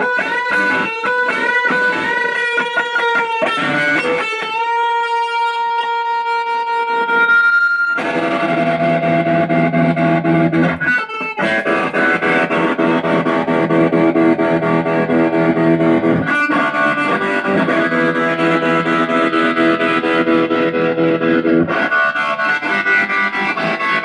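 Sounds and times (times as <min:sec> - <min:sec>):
distorted electric guitar: 0:00.0 - 0:24.0.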